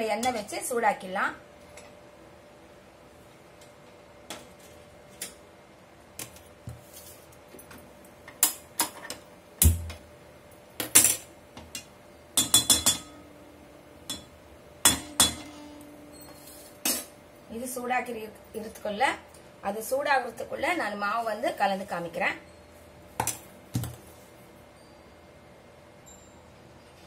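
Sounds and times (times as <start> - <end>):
metal utensils clanking on pan: 10.9 - 13.2, 14.1 - 15.8.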